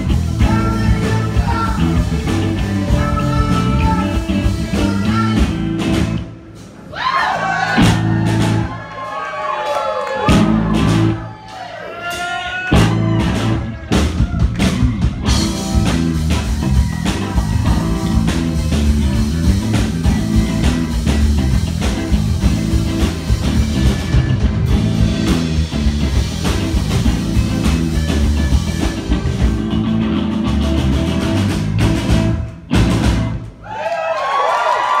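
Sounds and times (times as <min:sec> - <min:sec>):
bending electric guitar notes: 0:00.0 - 0:06.3, 0:12.7 - 0:33.6
rock band playing live: 0:00.0 - 0:06.9, 0:07.5 - 0:09.2, 0:10.0 - 0:33.6.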